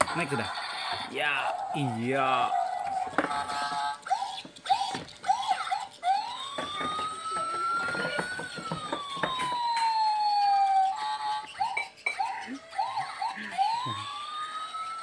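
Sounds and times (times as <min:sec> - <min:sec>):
toy electronic siren chirping and wailing: 0:00.1 - 0:15.0.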